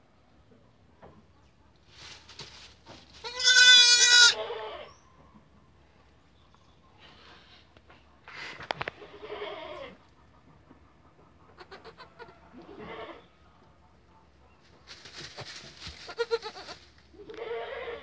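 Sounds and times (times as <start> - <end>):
rustling: 1.8 - 4.1, 14.7 - 17.0
goat kids bleating: 3.2 - 4.9, 9.0 - 10.0, 11.6 - 13.3, 15.4 - 18.0.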